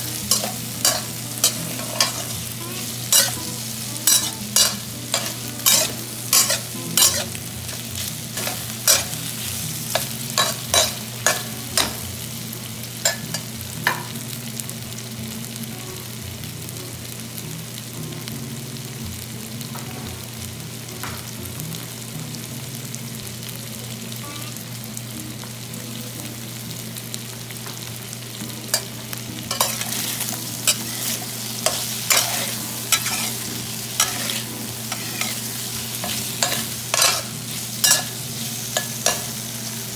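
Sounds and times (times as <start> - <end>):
shrimp sizzling in oil: 0.0 - 39.9
metal spoon scraping pan: 0.3 - 2.4, 4.0 - 7.3, 30.7 - 38.1.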